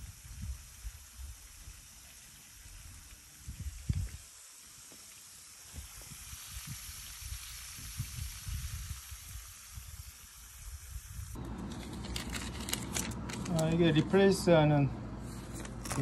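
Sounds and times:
wind on microphone: 0:00.0 - 0:01.9, 0:02.7 - 0:04.3, 0:05.7 - 0:11.4.

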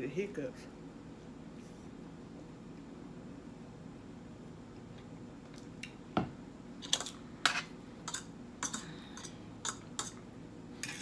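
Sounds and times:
utensils tapping metal platter: 0:06.9 - 0:10.2.

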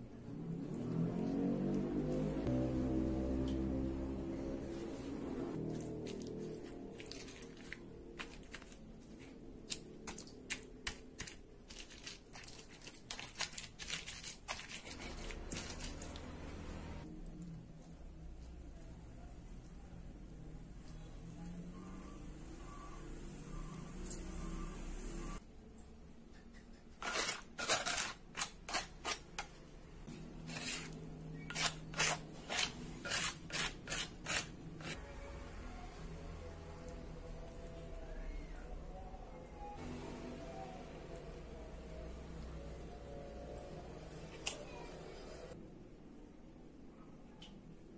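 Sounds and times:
spoon scraping stone mortar: 0:05.7 - 0:16.2, 0:26.8 - 0:29.5, 0:30.1 - 0:35.0
stone pestle grinding on stone slab: 0:27.0 - 0:29.2, 0:30.4 - 0:35.0.

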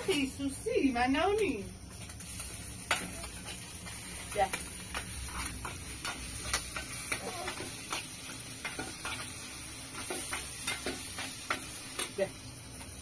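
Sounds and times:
eggs sizzling in a pan: 0:00.0 - 0:13.0
spoon scraping a pan: 0:04.3 - 0:12.2.

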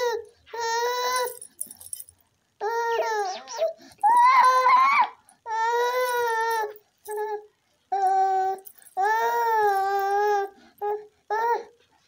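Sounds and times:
baby crying: 0:02.6 - 0:06.7.

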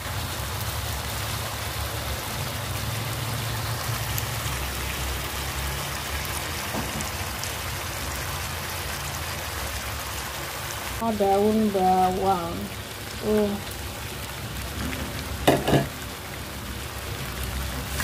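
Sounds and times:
food sizzling in a wok: 0:00.0 - 0:18.0.

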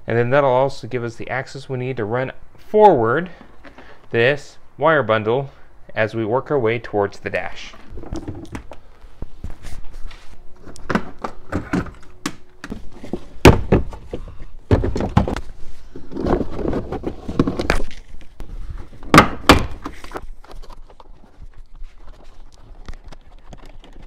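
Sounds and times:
loud thunk: 0:13.4 - 0:14.0.

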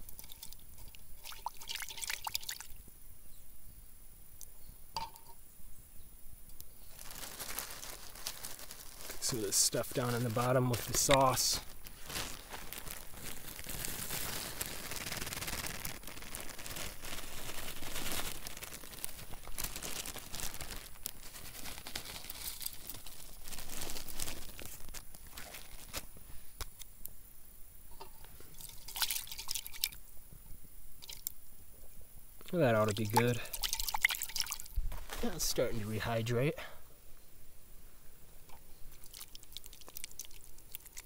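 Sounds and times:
plastic bag crinkling: 0:06.9 - 0:26.2, 0:32.7 - 0:36.1.

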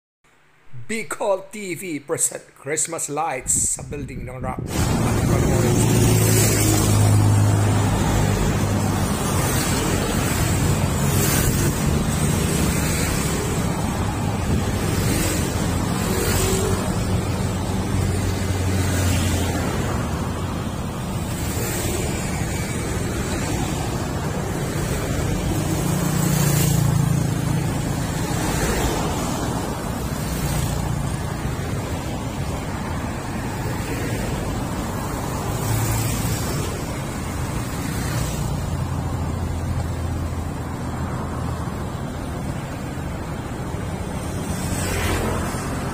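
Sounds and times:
wind noise on microphone: 0:03.4 - 0:16.1
cars passing: 0:04.0 - 0:45.9.

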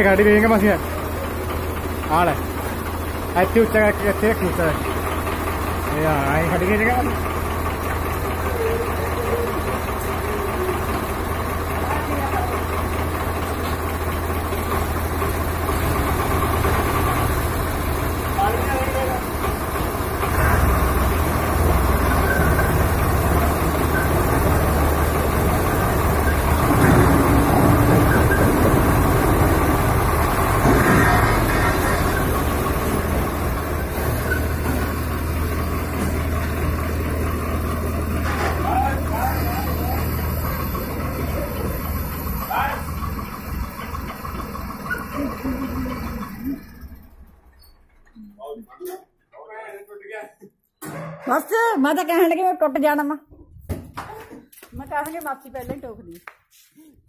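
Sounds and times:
diesel tractor engines idling: 0:00.0 - 0:48.6.

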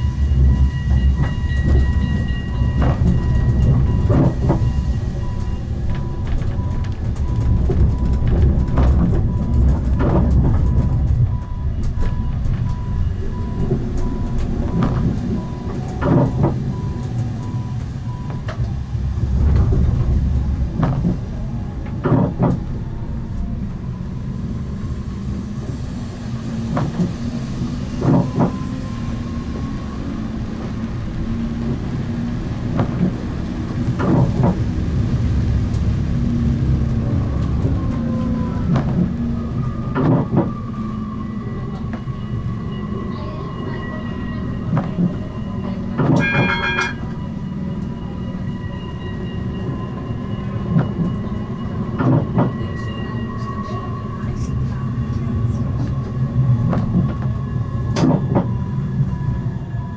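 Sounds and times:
high ringing tone: 0:00.0 - 0:09.6, 0:40.7 - 0:55.5
tram rumble: 0:00.0 - 0:59.9.

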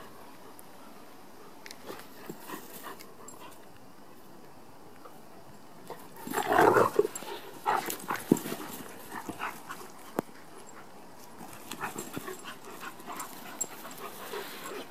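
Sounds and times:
dogs vocalising while tussling: 0:05.9 - 0:14.9.

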